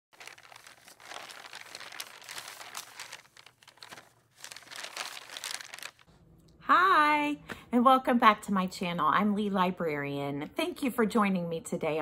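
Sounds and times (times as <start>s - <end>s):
paper rustling and crinkling: 0.1s - 6.2s.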